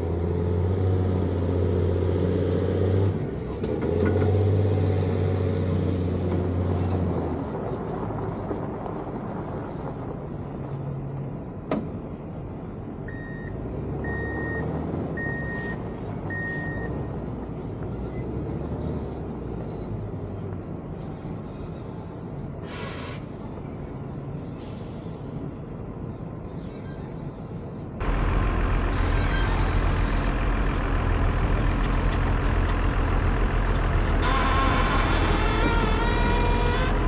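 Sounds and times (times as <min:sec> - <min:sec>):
heavy diesel engines running: 0:00.0 - 0:37.0.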